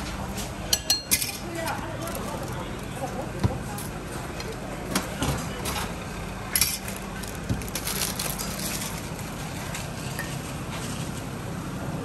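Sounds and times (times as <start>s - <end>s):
crinkling food packaging: 1.6s - 2.9s, 6.8s - 10.2s.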